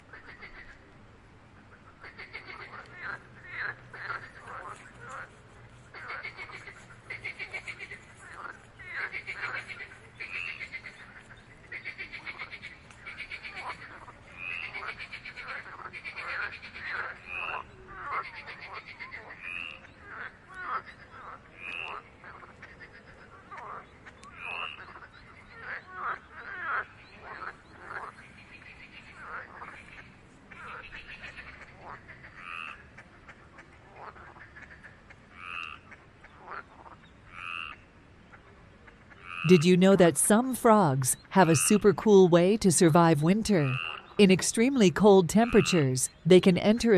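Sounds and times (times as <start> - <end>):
frogs croaking: 1.7 - 5.3, 5.9 - 33.0, 33.9 - 37.9, 39.2 - 39.5
frog croaking: 2.0 - 4.8, 35.4 - 35.8, 37.3 - 37.8, 39.2 - 39.4
high frog note: 39.5 - 46.9.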